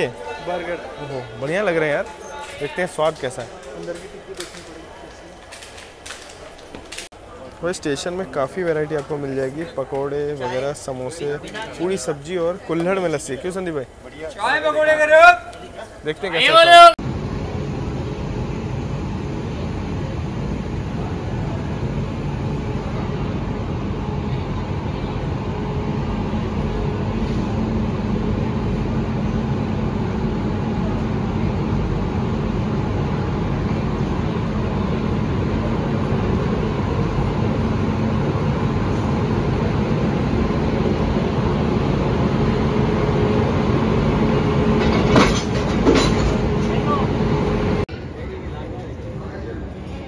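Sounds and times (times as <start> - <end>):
locomotive rumble and hiss: 17.1 - 47.9.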